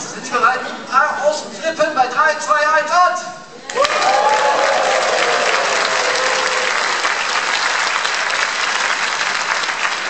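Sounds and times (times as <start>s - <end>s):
people shouting and whooping: 3.7s - 7.0s
audience clapping and cheering: 3.7s - 10.0s.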